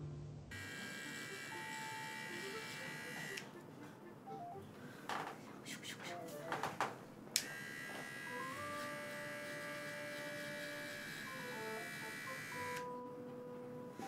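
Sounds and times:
paw trimmer buzzing: 0:00.5 - 0:03.5, 0:07.4 - 0:13.0.

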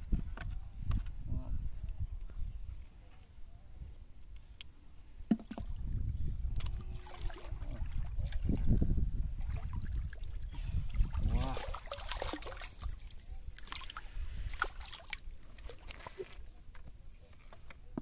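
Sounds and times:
fish splashing in shallow water: 0:06.5 - 0:16.9.

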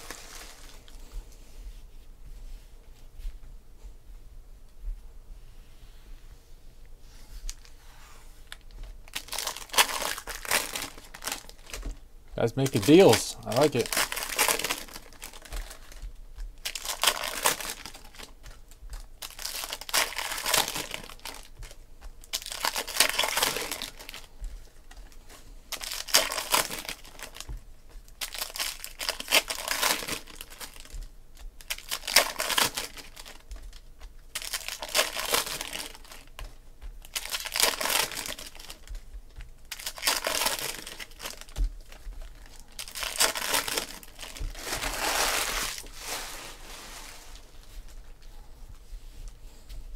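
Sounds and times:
foil wrappers tearing and crinkling: 0:00.0 - 0:00.9, 0:08.5 - 0:24.4, 0:25.7 - 0:39.0, 0:39.6 - 0:47.4
cards being handled: 0:08.6 - 0:27.6.

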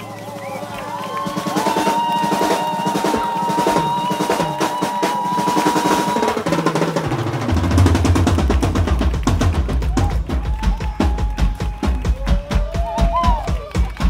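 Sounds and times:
rapid drum hits: 0:01.2 - 0:14.0
heavy bass: 0:07.4 - 0:14.0.

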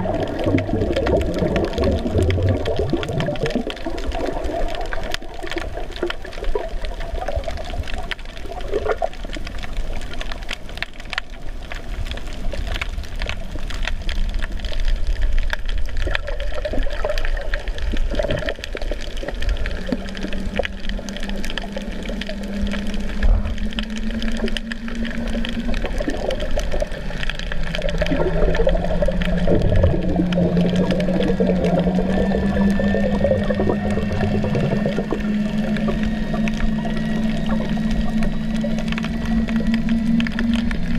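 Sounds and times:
crackling clicks: 0:00.0 - 0:40.9
low steady hum: 0:00.0 - 0:40.9
underwater water noise: 0:00.0 - 0:40.9.

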